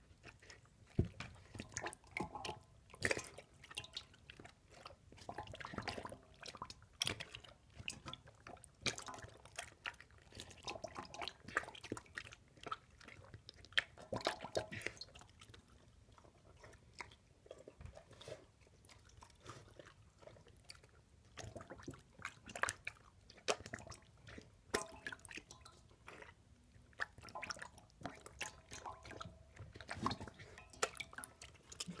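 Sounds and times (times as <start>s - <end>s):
dog chewing and crunching: 0.0s - 2.4s, 11.3s - 32.0s
dog lapping: 0.2s - 32.0s.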